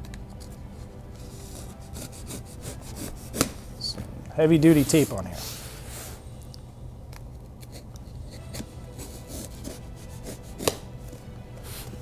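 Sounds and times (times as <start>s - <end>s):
scratching at packing tape: 1.2s - 3.6s, 7.5s - 11.0s.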